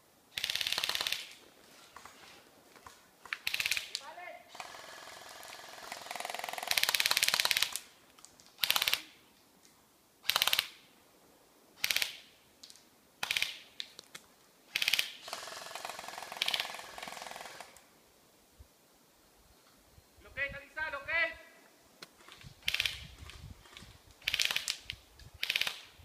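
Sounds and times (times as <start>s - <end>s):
airsoft guns firing full-auto: 0.4s - 1.4s, 4.5s - 7.9s, 14.7s - 17.8s, 24.2s - 24.8s, 25.4s - 25.9s.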